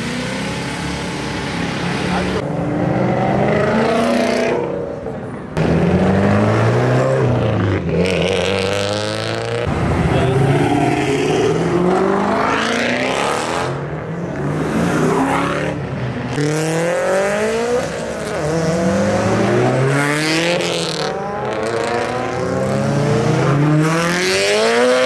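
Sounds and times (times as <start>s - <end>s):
car engines accelerating hard: 0.0s - 25.0s.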